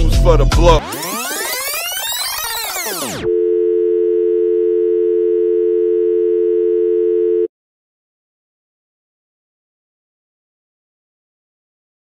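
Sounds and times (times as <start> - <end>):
telephone dial tone: 3.0 - 7.5.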